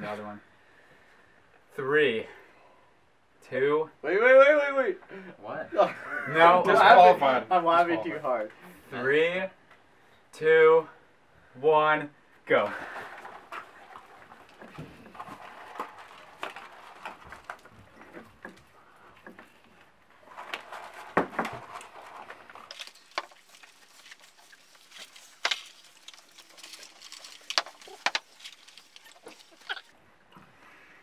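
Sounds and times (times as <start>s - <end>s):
paper wrappers rustling: 12.8s - 18.6s, 20.2s - 29.9s.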